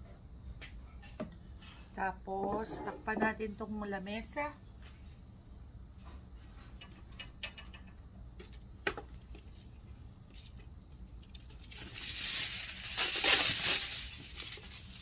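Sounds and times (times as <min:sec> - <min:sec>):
plastic sheet rustling: 0:11.2 - 0:15.0.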